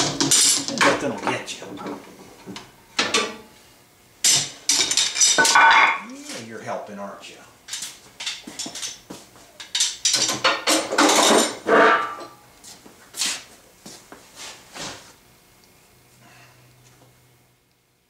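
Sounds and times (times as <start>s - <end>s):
metal clanks and knocks: 9.7s - 12.4s.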